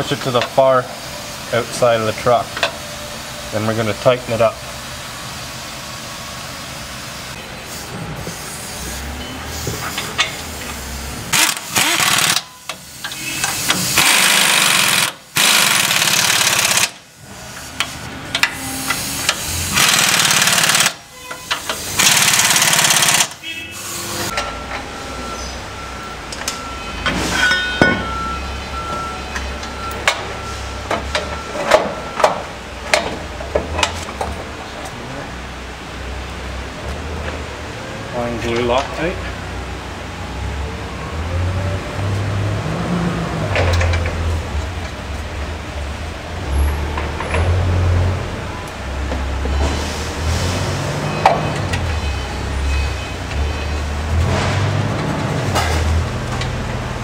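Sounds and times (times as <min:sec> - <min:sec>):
impact wrench bursts: 0:11.3 - 0:17.7, 0:18.4 - 0:24.4.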